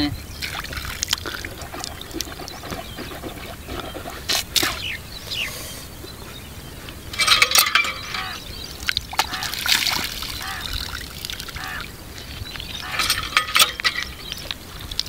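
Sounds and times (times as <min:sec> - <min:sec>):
water splashing: 0:00.0 - 0:05.4, 0:07.0 - 0:15.0
hand pump handle clanking: 0:07.1 - 0:09.5, 0:12.8 - 0:14.5.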